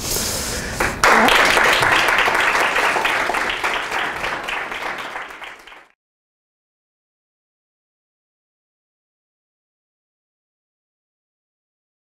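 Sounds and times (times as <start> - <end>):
audience applauding: 0.8 - 6.0.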